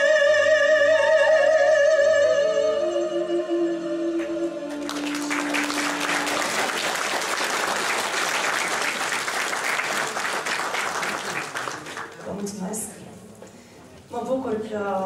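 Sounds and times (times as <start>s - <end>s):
audience applauding: 4.7s - 12.3s.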